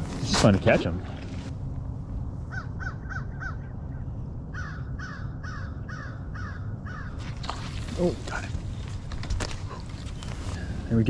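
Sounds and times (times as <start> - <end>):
steady low rumble: 0.0 - 11.0
crow cawing: 2.5 - 3.7, 4.5 - 7.4.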